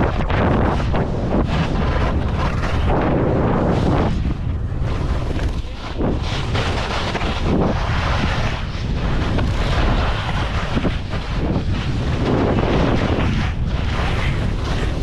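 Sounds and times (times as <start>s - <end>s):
skis scraping on snow: 0.0s - 15.0s
wind buffeting microphone: 0.0s - 15.0s.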